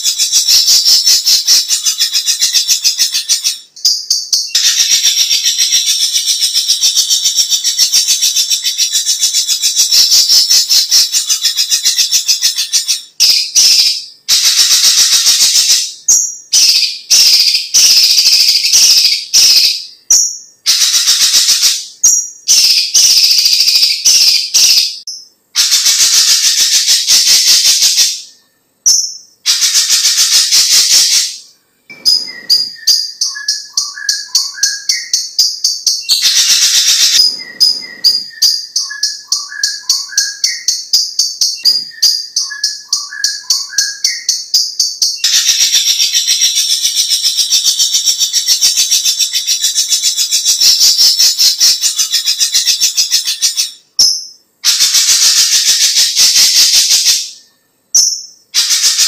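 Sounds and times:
bird ticking and whistled notes: 0.0 - 59.0
bird rattling trills: 31.9 - 33.6, 36.1 - 39.2.

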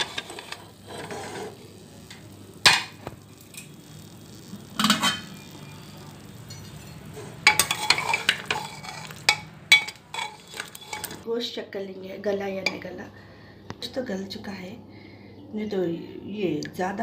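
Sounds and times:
metal ladle clinking in a pot: 6.5 - 11.2.

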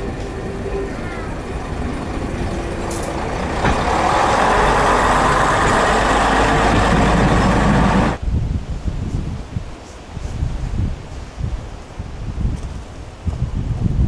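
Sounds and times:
railbus diesel engine passing: 0.0 - 8.2
rustling leaves: 0.0 - 14.0
wind: 0.0 - 14.0.

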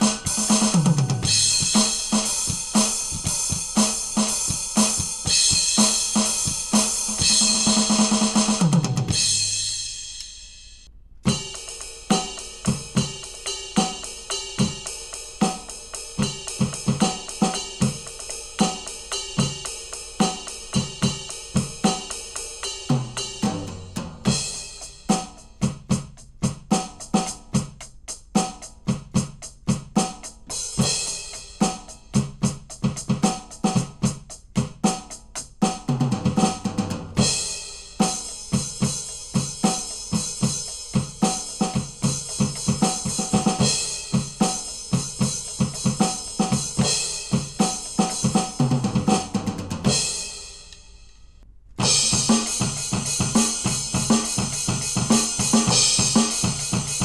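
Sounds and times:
cymbal ringing: 0.0 - 8.0, 9.2 - 12.6
electronic drum groove: 0.0 - 10.4, 11.3 - 50.4, 51.8 - 57.0
tom fill: 0.0 - 10.6, 51.5 - 57.0.

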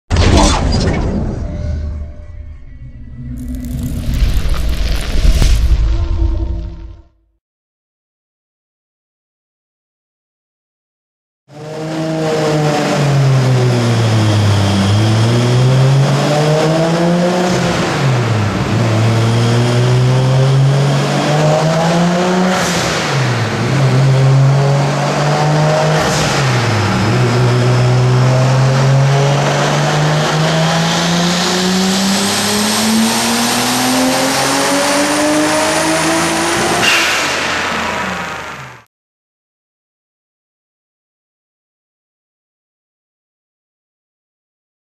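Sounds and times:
engine revving at full throttle: 11.5 - 38.9.

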